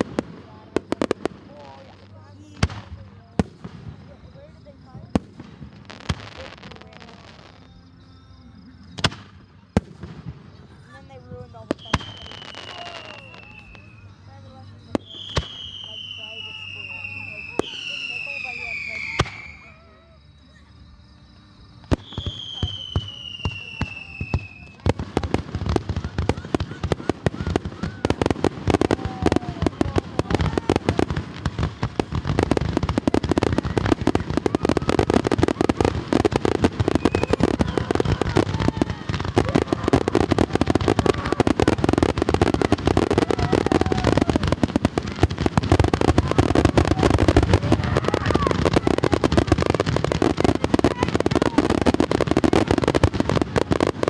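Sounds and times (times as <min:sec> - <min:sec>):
fireworks bangs and crackles: 0:00.0 - 0:20.0, 0:21.3 - 0:54.0
falling firework whistle: 0:11.8 - 0:14.2, 0:14.8 - 0:20.6, 0:21.6 - 0:24.9, 0:32.4 - 0:54.0.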